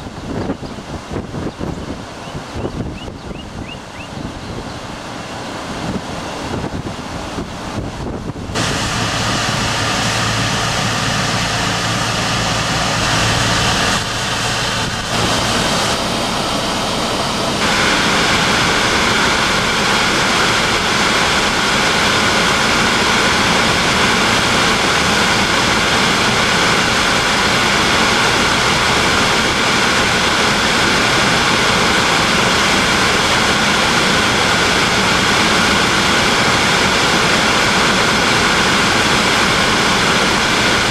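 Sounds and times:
road and wind noise in car: 0.0 - 40.9
faint high whine: 8.6 - 40.9.

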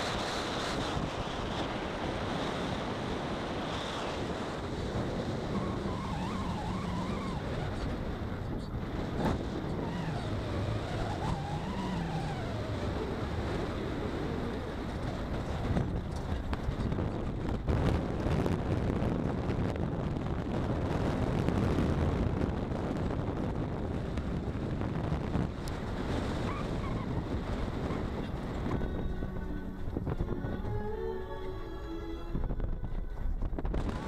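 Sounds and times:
car road noise: 0.0 - 34.0
wind buffeting microphone: 0.0 - 34.0.

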